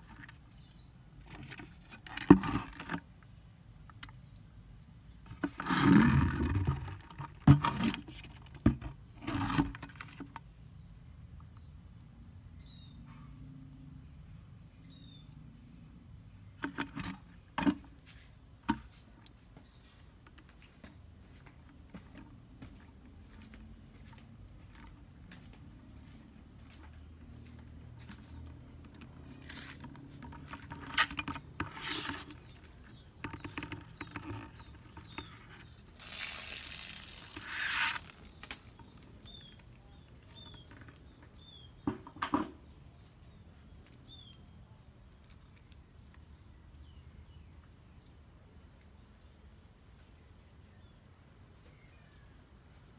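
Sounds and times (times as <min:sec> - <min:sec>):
plastic bucket clicks and knocks: 0:05.2 - 0:10.4, 0:16.6 - 0:18.0, 0:29.9 - 0:35.3, 0:41.8 - 0:42.6
bird chirps: 0:14.8 - 0:15.4
rustling in dry undergrowth: 0:35.0 - 0:39.5.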